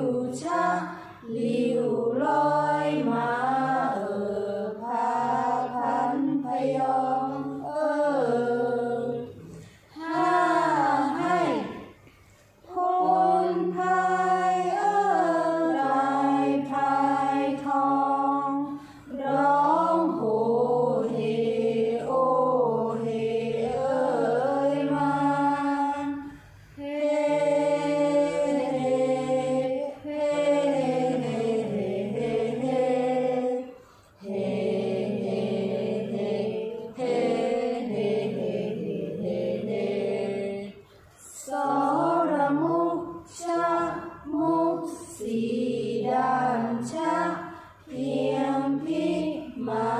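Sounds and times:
group of voices chanting: 0:00.0 - 0:11.9.

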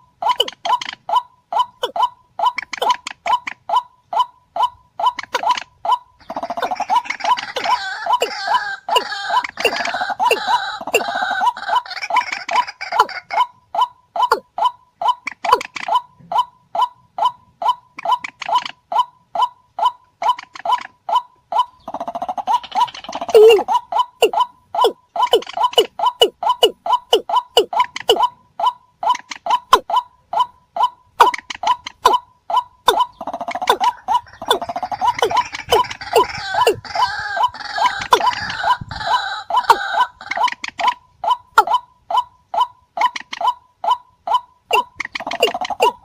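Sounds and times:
rail bird calls: 0:00.0 - 0:46.0
fast rattling bird chatter: 0:05.0 - 0:13.4, 0:21.6 - 0:28.3, 0:32.9 - 0:41.0, 0:44.7 - 0:46.0.

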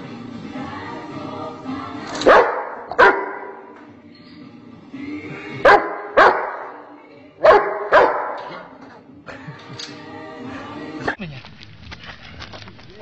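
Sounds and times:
dog barking: 0:02.2 - 0:03.6, 0:05.6 - 0:06.8, 0:07.4 - 0:08.7.

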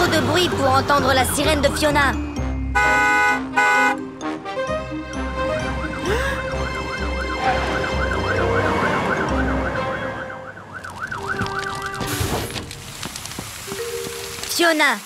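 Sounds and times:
cartoon siren wailing: 0:05.6 - 0:12.0
hose spraying: 0:12.0 - 0:15.0.

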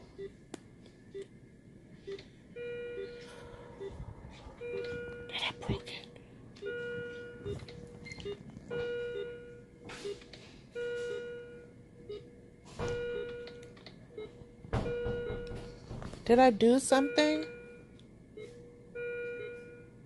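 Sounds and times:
held alarm beep: 0:02.6 - 0:04.0, 0:04.6 - 0:05.3, 0:06.6 - 0:10.2, 0:12.9 - 0:13.6, 0:14.2 - 0:15.6, 0:16.9 - 0:19.9
short low pulse beeps: 0:04.6 - 0:05.7.

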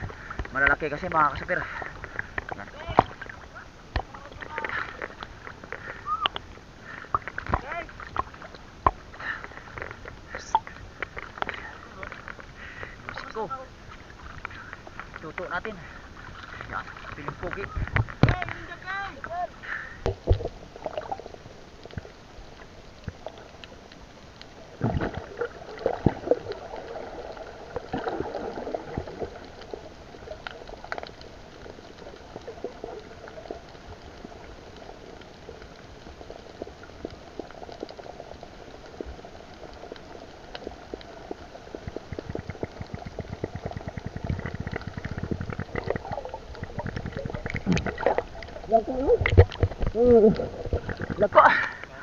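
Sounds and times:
underwater clicks and knocks: 0:00.0 - 0:06.5, 0:07.1 - 0:13.4, 0:16.4 - 0:18.7, 0:20.0 - 0:21.2, 0:39.9 - 0:51.9
muffled underwater bubbling: 0:00.0 - 0:52.0
water surges: 0:00.0 - 0:52.0.

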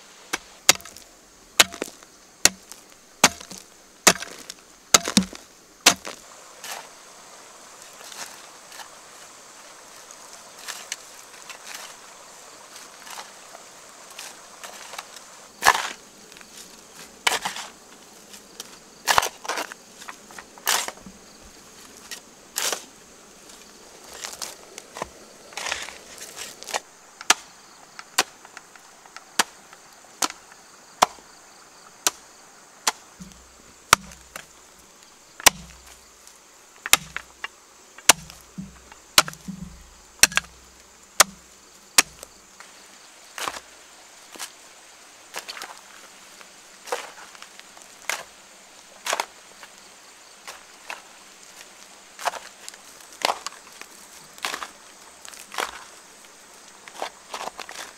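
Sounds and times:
insect drone: 0:00.0 - 0:57.9
hoe chopping into soil: 0:00.3 - 0:06.9, 0:14.2 - 0:17.8, 0:18.4 - 0:21.4, 0:24.1 - 0:28.4, 0:31.0 - 0:31.2, 0:32.8 - 0:34.5, 0:35.4 - 0:36.0, 0:36.8 - 0:42.4, 0:54.4 - 0:55.9.

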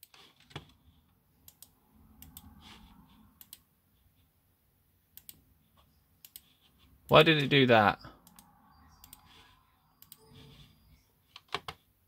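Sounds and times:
mouse and key clicks: 0:01.4 - 0:03.7, 0:05.1 - 0:07.5, 0:08.2 - 0:11.8.

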